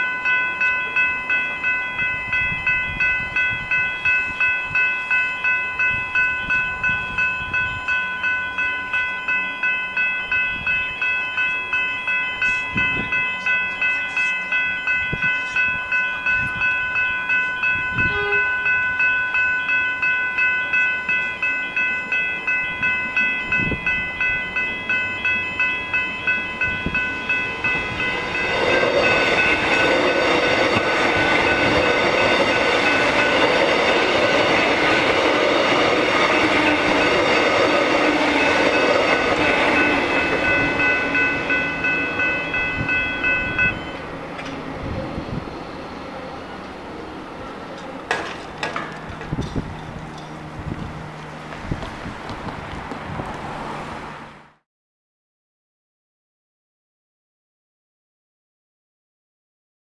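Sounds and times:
level crossing bells ringing: 0:00.0 - 0:44.5
train rushing past: 0:00.0 - 0:54.6.

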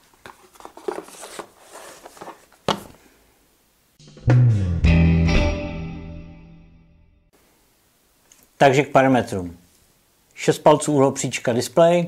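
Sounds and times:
cardboard box rustling: 0:00.0 - 0:03.0.

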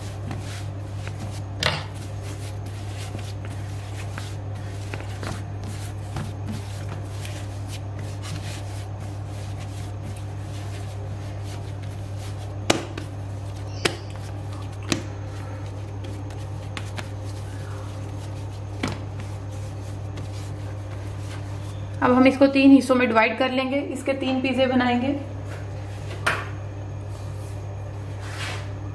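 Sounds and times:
dough rubbing and handling: 0:00.0 - 0:23.2, 0:26.8 - 0:28.9
dough thumping on worktop: 0:00.2 - 0:08.6, 0:11.6 - 0:15.1, 0:18.7 - 0:19.4.

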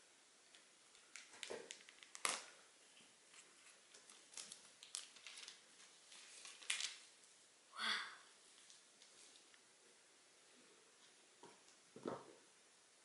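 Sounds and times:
plastic wrap crinkling: 0:00.5 - 0:07.3.

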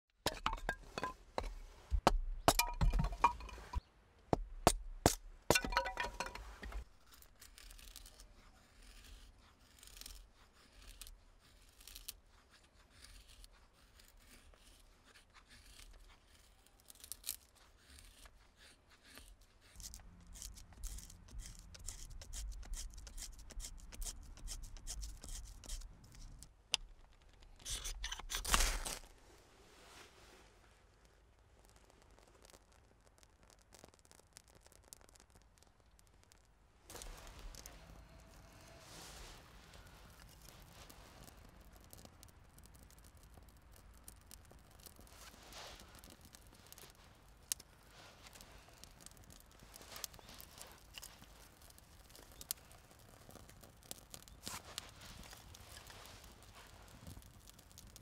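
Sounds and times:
wood stick cracking: 0:00.2 - 0:08.3, 0:11.9 - 0:29.2, 0:31.0 - 0:58.0
knife scraping wood: 0:05.5 - 0:26.4, 0:27.4 - 0:29.1, 0:44.3 - 0:57.9
ferro rod rasping scrape: 0:06.2 - 0:25.9.

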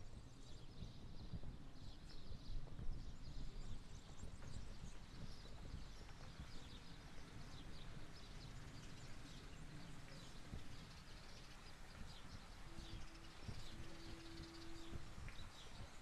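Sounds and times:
small birds chirping: 0:00.2 - 0:16.0
faint steady tone: 0:09.6 - 0:16.0.

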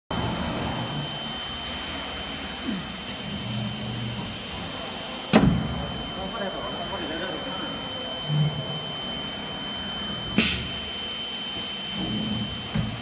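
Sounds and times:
high steady whine: 0:00.1 - 0:13.0
machine mechanical whir: 0:00.1 - 0:13.0
loud thump: 0:05.3 - 0:05.8.

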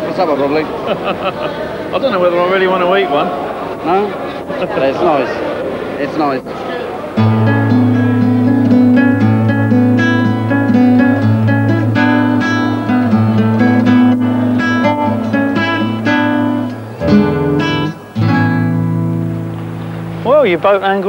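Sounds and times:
guitar plucking and strumming: 0:07.2 - 0:21.0.

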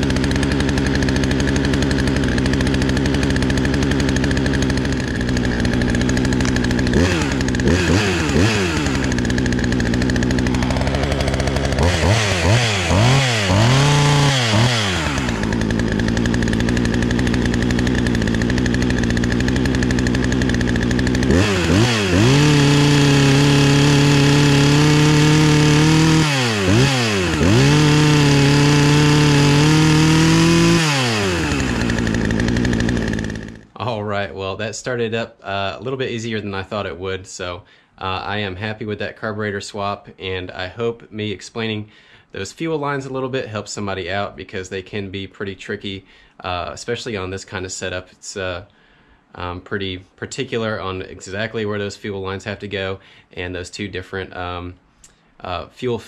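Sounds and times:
chainsaw engine revving: 0:00.0 - 0:34.1.

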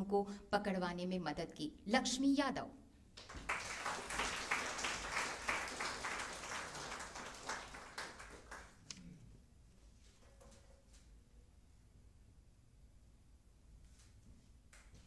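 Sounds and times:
audience applauding: 0:03.2 - 0:08.8.

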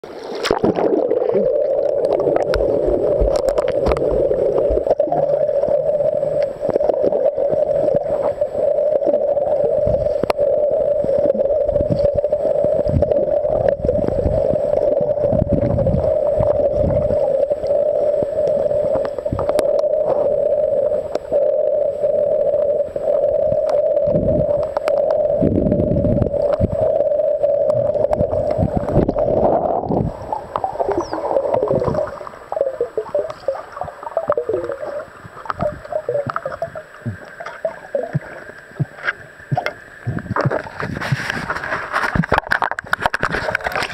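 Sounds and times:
low underwater rumbles: 0:00.0 - 0:43.9
underwater drone: 0:00.0 - 0:43.9
underwater knocks: 0:35.3 - 0:43.9.

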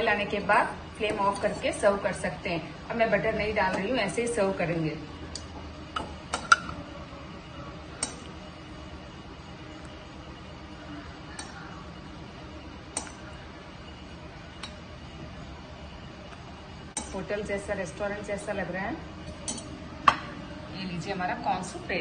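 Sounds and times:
steel ladle clinking on pot: 0:19.4 - 0:20.3.

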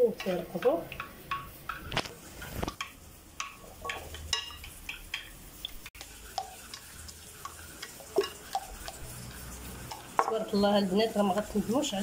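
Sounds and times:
spoon scraping in glass dish: 0:01.4 - 0:05.3, 0:06.3 - 0:10.7.

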